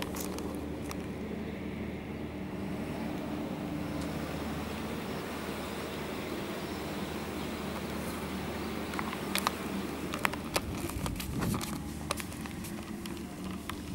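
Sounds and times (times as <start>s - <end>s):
distant traffic hum: 0.0s - 13.9s.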